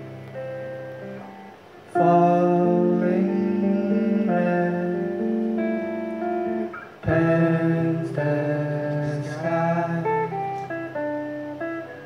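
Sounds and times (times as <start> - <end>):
acoustic guitar strumming chords: 0.0 - 12.0.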